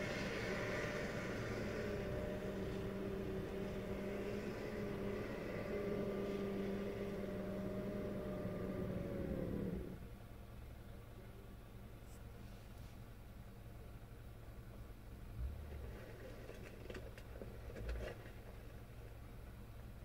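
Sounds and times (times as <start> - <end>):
vehicle motor humming: 0.0 - 10.2.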